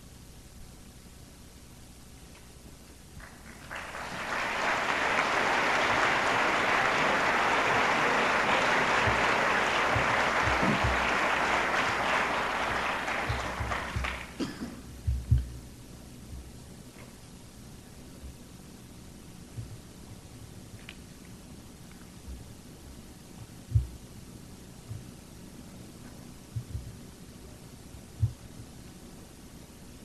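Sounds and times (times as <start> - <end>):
audience applauding: 3.2 - 14.6
low thumps: 9.0 - 11.2, 12.6 - 15.7, 26.5 - 27.0.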